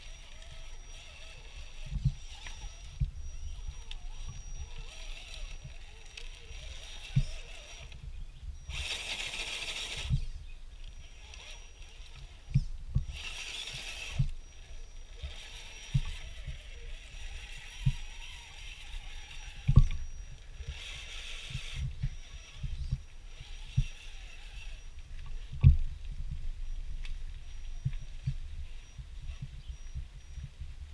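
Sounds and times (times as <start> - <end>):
electric motor and gears whirring: 0.0 - 30.9
dull low thumps: 1.3 - 5.9, 15.2 - 30.9.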